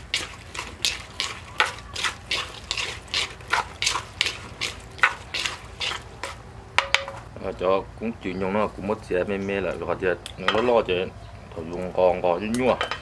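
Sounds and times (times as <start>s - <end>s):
spoon stirring salad in a mortar: 0.0s - 7.3s.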